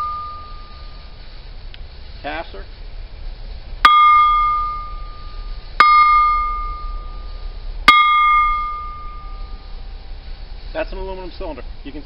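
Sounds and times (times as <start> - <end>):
metal tank bell ringing: 0.0 - 1.1, 3.9 - 9.8.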